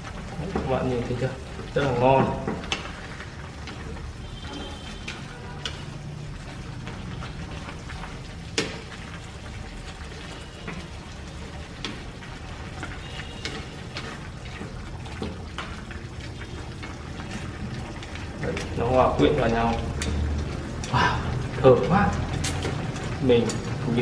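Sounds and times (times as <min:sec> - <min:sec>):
food sizzling in a pan: 0:00.0 - 0:24.0.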